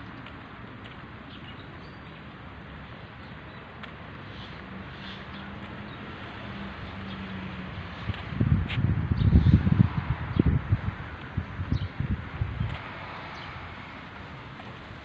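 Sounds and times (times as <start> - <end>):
passing vehicle engine hum: 4.3 - 15.0
wind buffeting microphone: 7.0 - 15.0.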